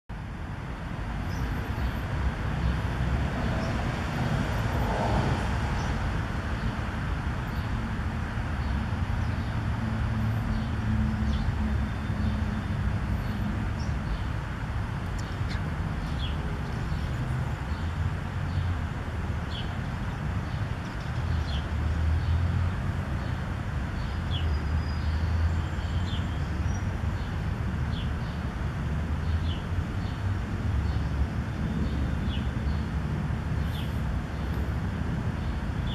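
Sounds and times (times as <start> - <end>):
distant road traffic rumble: 0.1 - 35.9
bird chirping: 15.1 - 17.9.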